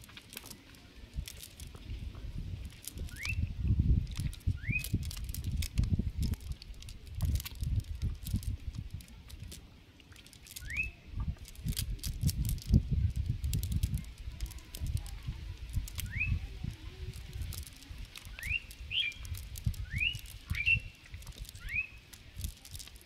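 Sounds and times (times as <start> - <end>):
small clicks: 0.0 - 1.8, 2.6 - 3.4, 4.0 - 23.0
wet fishing net rustling: 0.0 - 23.0
bird chirping: 4.5 - 5.0, 10.6 - 11.1, 16.0 - 16.5, 18.2 - 22.1.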